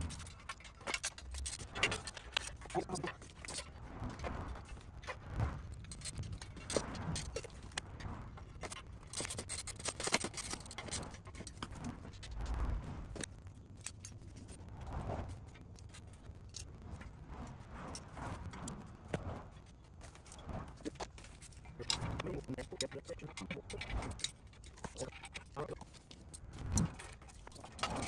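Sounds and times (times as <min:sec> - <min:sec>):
metal clinks knocks and scrapes: 0:00.0 - 0:12.4, 0:15.8 - 0:28.0.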